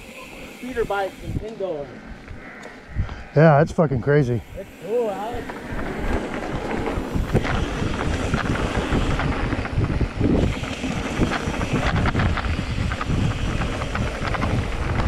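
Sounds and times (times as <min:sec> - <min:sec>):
wind buffeting microphone: 0:00.8 - 0:15.0
tyres rumbling on dirt: 0:04.1 - 0:15.0
bike rattles and clicks: 0:04.4 - 0:15.0.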